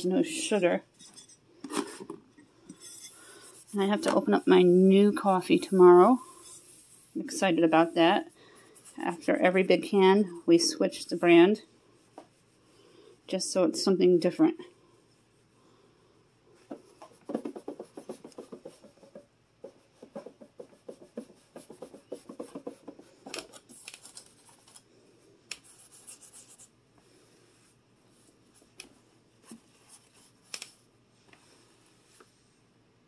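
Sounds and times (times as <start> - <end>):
sponge scrubbing metal and plastic: 2.8 - 10.2, 16.9 - 23.1.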